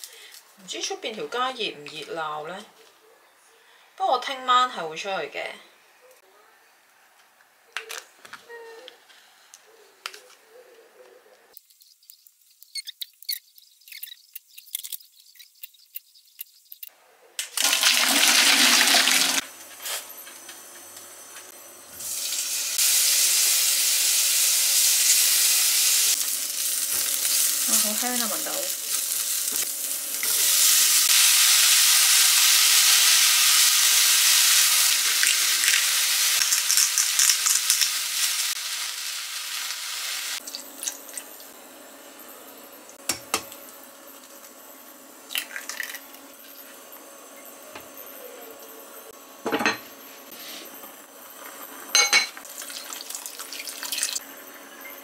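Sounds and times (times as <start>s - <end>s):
loud steady hiss: 22.0s - 40.4s
pots and utensils clinking: 51.9s - 54.2s.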